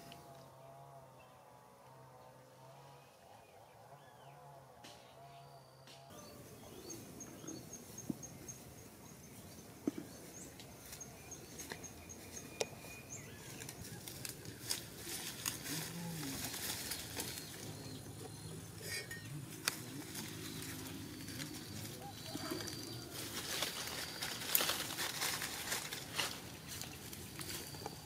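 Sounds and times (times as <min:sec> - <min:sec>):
undergrowth rustling: 0:07.4 - 0:28.0
twigs snapping and crackling: 0:13.4 - 0:17.8, 0:19.5 - 0:28.0.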